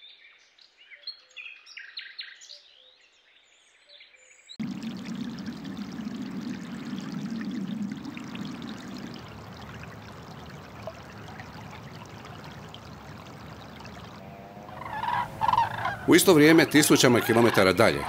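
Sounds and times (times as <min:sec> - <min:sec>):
water running over grass: 0:04.6 - 0:18.0.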